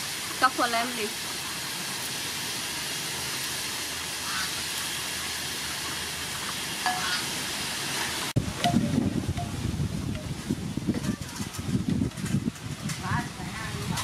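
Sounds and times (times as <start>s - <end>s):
chicken sizzling in a pot: 0.0s - 8.8s.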